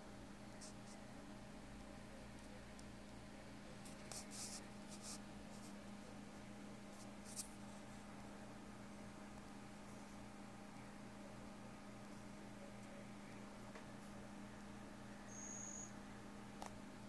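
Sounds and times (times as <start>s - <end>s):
room hum and hiss: 0.0s - 17.0s
soft scratching: 0.6s - 1.0s, 3.8s - 5.9s, 6.9s - 8.1s.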